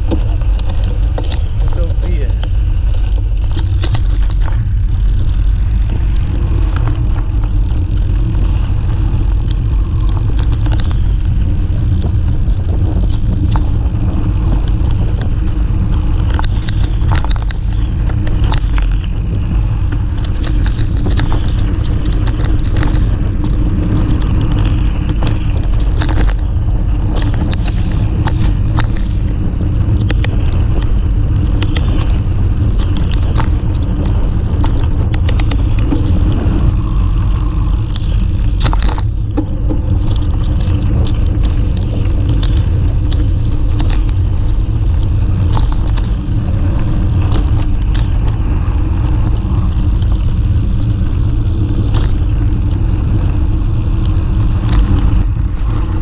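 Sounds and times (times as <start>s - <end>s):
bike clicks and rattles: 0.0s - 56.0s
bike tyres rolling over gravel: 0.0s - 56.0s
wind rumbling on microphone: 0.0s - 56.0s.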